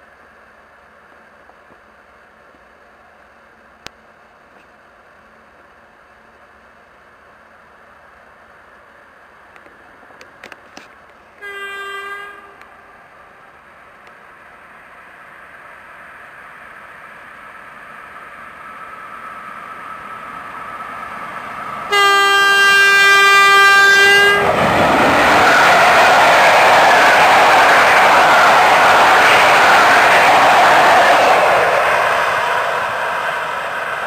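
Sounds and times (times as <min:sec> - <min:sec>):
train rumbling past: 0:07.1 - 0:34.0
train horn blasts: 0:11.4 - 0:12.8, 0:21.9 - 0:24.6.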